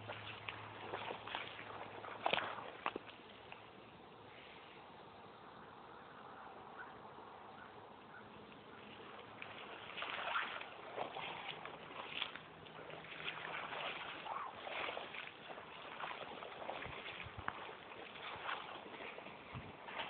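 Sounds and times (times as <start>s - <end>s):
footsteps swishing through grass: 9.0s - 20.0s.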